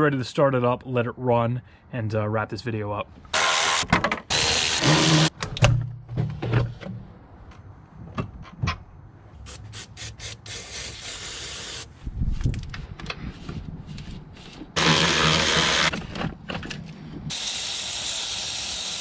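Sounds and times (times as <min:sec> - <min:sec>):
engine parts clicking and knocking: 0:15.9 - 0:17.3
aerosol spraying: 0:17.3 - 0:19.0.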